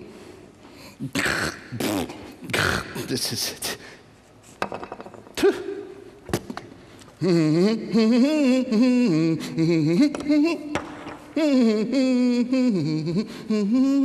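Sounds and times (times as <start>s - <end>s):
man humming: 7.2s - 14.0s.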